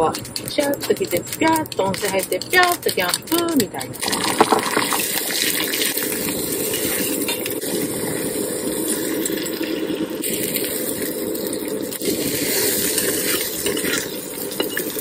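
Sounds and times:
egg sizzling in frying pan: 4.0 - 15.0.

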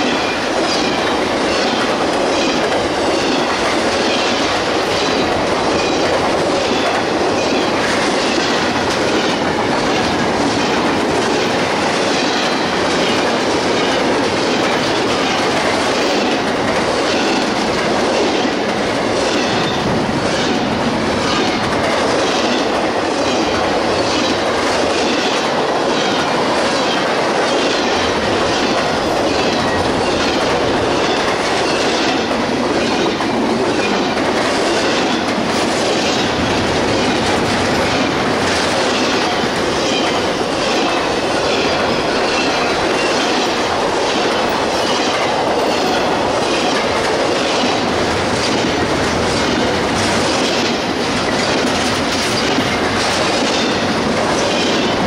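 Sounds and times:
freight train rumbling past: 0.0 - 55.0
wheels clicking over rail joints: 0.0 - 55.0.

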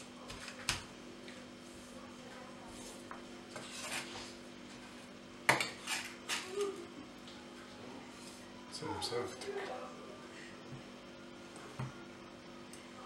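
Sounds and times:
knife scraping on cutting board: 3.5 - 5.0, 5.6 - 6.2.

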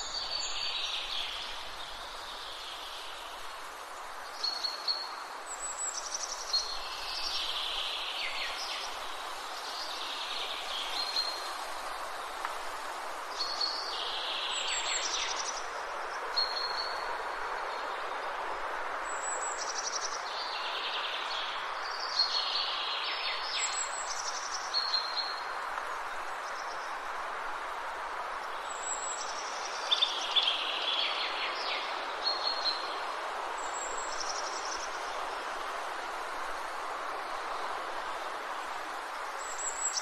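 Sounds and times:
songbirds singing: 0.0 - 12.4, 19.0 - 27.1, 28.4 - 35.5
steady background hiss: 0.0 - 40.0.

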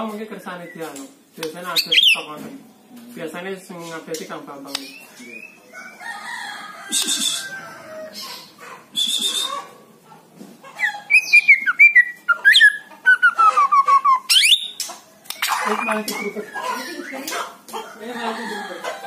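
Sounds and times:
songbird singing: 0.4 - 2.4, 3.7 - 6.3, 10.7 - 17.5.

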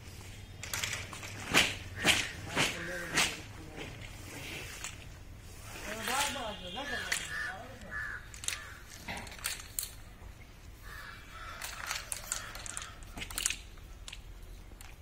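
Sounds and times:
crows cawing: 1.9 - 3.5, 6.8 - 9.1, 10.8 - 13.2.

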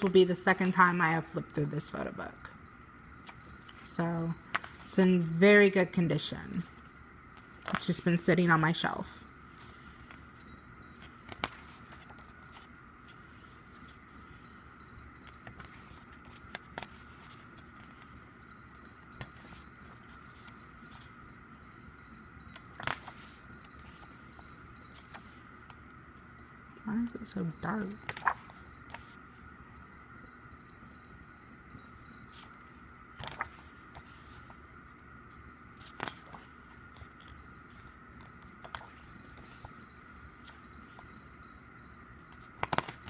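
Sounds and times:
faint background hum: 0.0 - 43.0
faint steady high whine: 0.0 - 43.0
book pages turning: 10.9 - 14.4, 15.3 - 18.1, 22.5 - 24.3, 24.9 - 25.8, 27.9 - 29.2, 32.3 - 34.6, 35.8 - 39.8, 42.5 - 43.0
page flip and rustle: 22.6 - 24.0, 28.0 - 29.2, 33.2 - 34.6, 35.8 - 39.8, 42.6 - 43.0.

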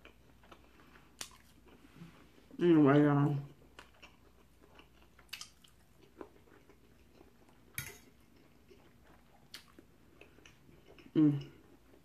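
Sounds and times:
faint chewing: 0.0 - 2.6, 3.3 - 12.0
fork clinking on a plate: 7.8 - 8.1.

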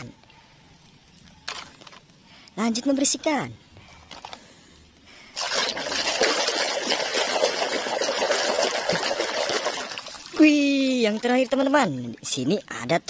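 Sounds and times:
water splashing in a bucket: 5.4 - 12.8.

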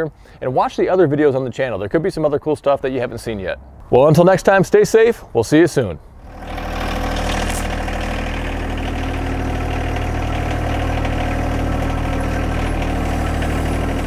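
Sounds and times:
engine idling: 6.2 - 14.0.

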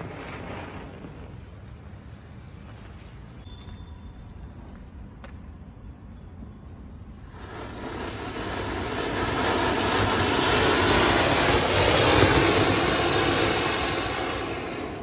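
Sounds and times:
fountain firework hissing: 7.2 - 15.0.

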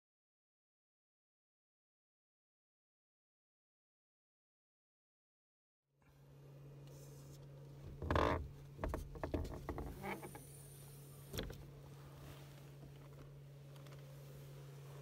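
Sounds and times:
steady low hum: 6.0 - 15.0.

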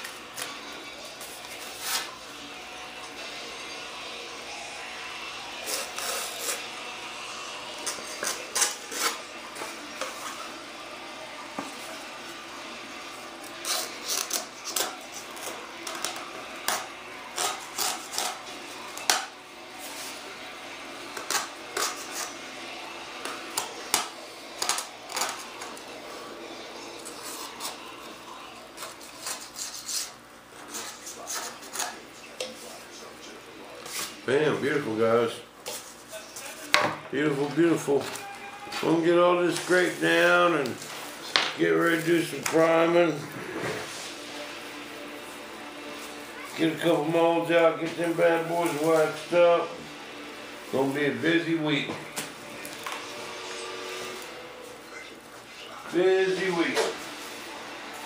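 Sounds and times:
razor blade scraping fiberglass: 5.6 - 6.7, 7.8 - 9.2, 16.6 - 18.5, 21.2 - 22.4, 28.8 - 32.0.

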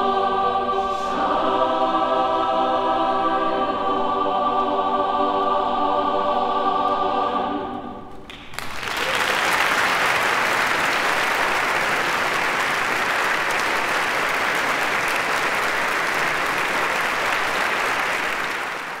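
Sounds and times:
audience applause: 8.3 - 19.0.

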